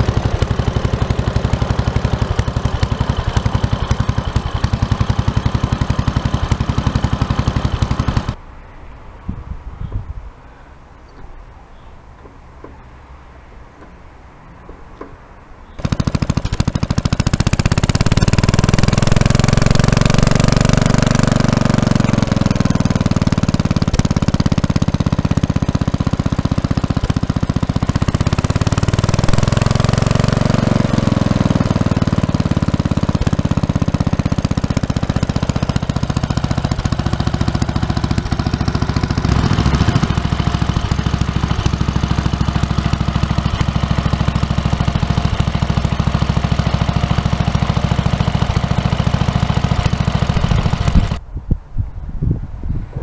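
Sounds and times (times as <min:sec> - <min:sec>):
stationary engine running: 0:00.0 - 0:08.4, 0:15.8 - 0:51.2.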